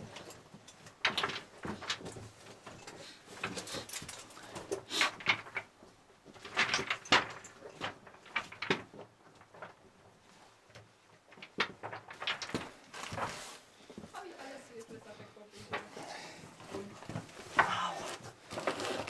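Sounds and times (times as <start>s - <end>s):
loose stones shifting: 0.0s - 14.2s, 14.8s - 19.0s
clothing and boots scraping rock: 15.8s - 19.0s.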